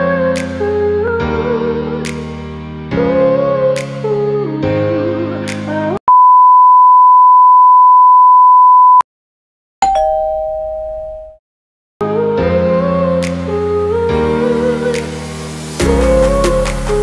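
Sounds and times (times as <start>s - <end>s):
background music: 0.0s - 6.0s, 12.0s - 17.0s.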